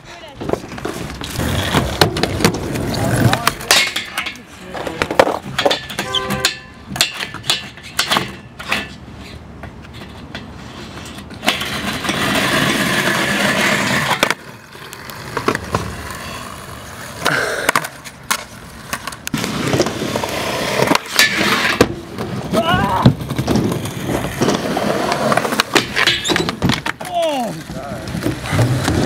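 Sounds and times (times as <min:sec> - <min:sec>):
skateboard rolling: 0:00.0 - 0:29.0
skateboard grinding on rail: 0:00.1 - 0:29.0
skateboard clacks and knocks: 0:00.2 - 0:09.0, 0:16.9 - 0:29.0.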